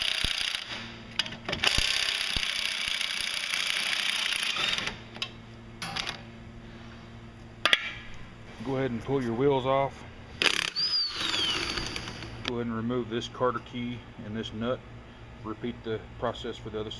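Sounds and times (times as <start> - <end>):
power ratchet spinning: 0.0 - 0.9, 1.6 - 5.0, 10.4 - 12.5.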